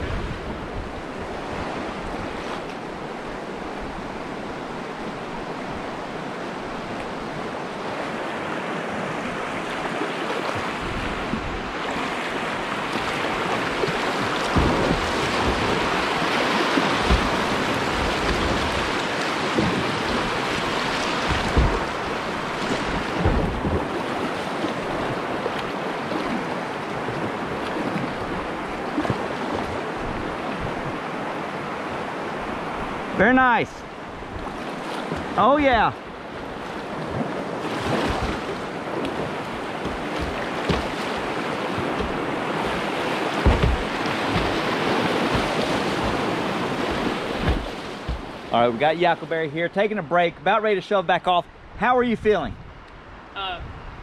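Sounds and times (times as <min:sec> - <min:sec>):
river water rushing: 0:00.0 - 0:49.6
low thumps: 0:14.5 - 0:24.0, 0:39.2 - 0:48.5.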